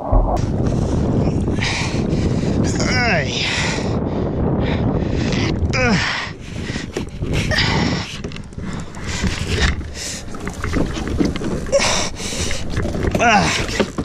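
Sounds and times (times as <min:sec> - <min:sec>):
downward sliding pitched sound: 0:00.0 - 0:00.5
wind on microphone: 0:00.0 - 0:14.0
water splashing around kayak: 0:06.4 - 0:14.0.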